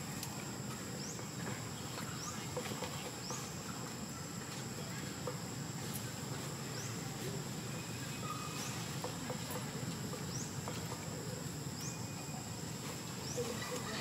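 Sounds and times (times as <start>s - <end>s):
insect high drone: 0.0s - 14.0s.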